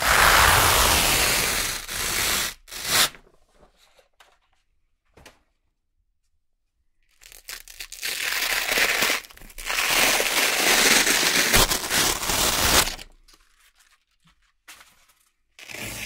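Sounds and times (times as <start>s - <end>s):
velcro strip ripping: 0.0s - 3.0s, 7.4s - 13.0s.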